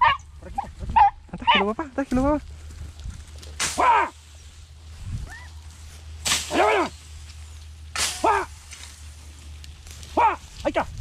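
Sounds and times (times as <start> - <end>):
beagles baying: 0.0 - 1.8, 3.7 - 4.2.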